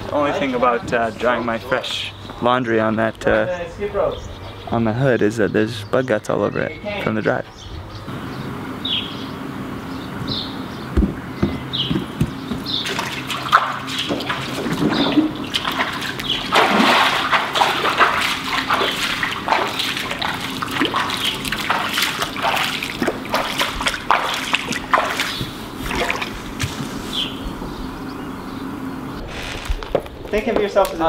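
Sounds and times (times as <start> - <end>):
bare feet splashing in water: 12.7 - 26.9.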